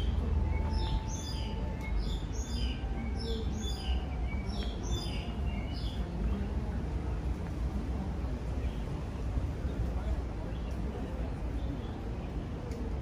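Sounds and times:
birds chirping: 0:00.0 - 0:07.0.

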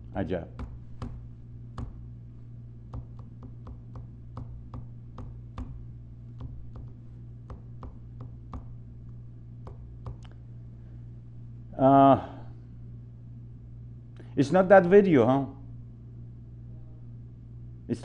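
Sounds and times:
low electrical hum: 0:00.0 - 0:18.0
computer clicks and taps: 0:00.6 - 0:02.0, 0:02.9 - 0:10.4.

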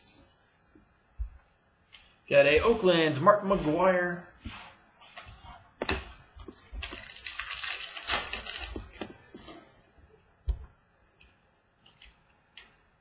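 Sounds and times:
card packs crinkling and rustling: 0:05.9 - 0:09.6.

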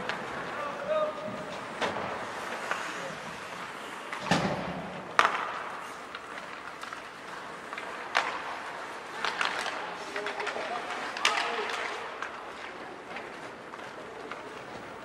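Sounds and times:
ice rink background noise: 0:00.0 - 0:15.0
hockey stick and puck knocks: 0:04.1 - 0:07.1, 0:07.7 - 0:12.3.

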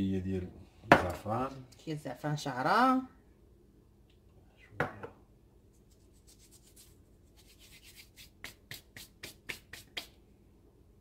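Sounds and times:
fingertips rubbing dry rasps: 0:05.8 - 0:10.1.

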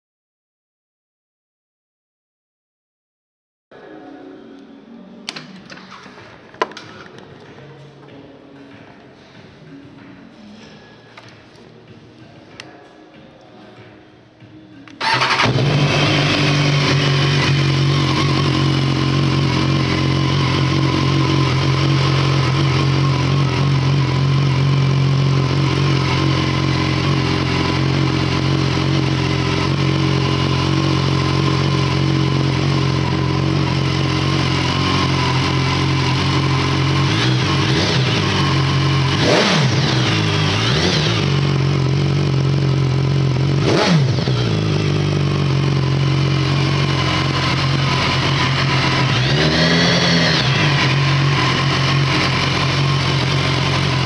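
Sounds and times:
engine throttle blips: 0:15.0 - 0:54.0
motorcycle engine idling: 0:15.0 - 0:54.0.

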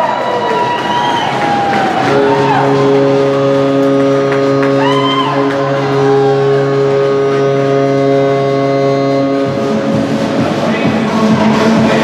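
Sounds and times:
crowd shouts: 0:00.0 - 0:03.3
held music chord: 0:02.0 - 0:12.0.

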